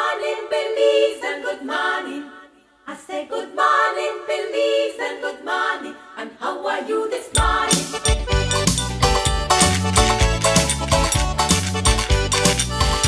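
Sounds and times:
a cappella singing: 0:00.0 - 0:08.1.

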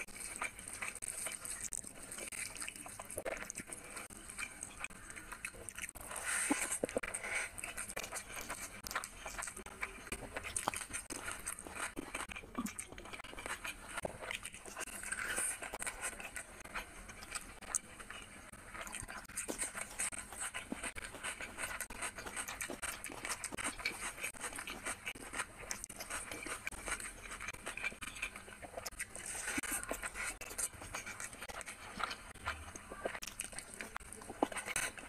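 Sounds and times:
person chewing with wet mouth noises: 0:00.0 - 0:35.0.

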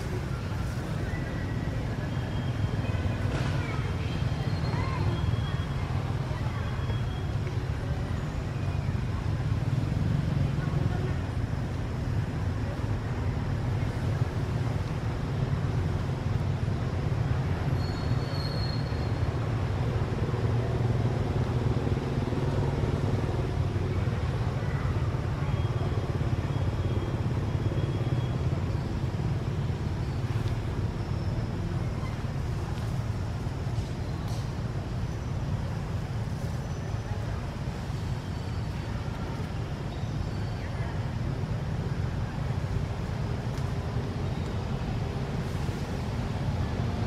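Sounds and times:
faint high chirp: 0:00.0 - 0:09.1, 0:17.7 - 0:19.3, 0:24.6 - 0:29.0, 0:30.0 - 0:32.9, 0:36.3 - 0:41.0.

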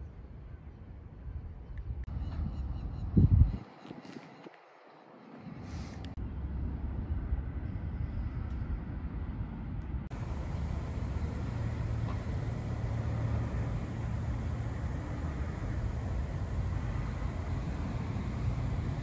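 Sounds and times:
low outdoor rumble: 0:06.2 - 0:19.0.

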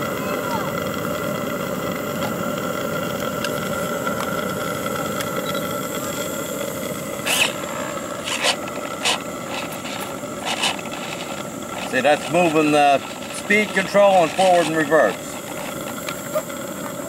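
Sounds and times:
steady rushing steam hiss: 0:00.0 - 0:17.0
servo whirring bursts: 0:04.6 - 0:17.0.

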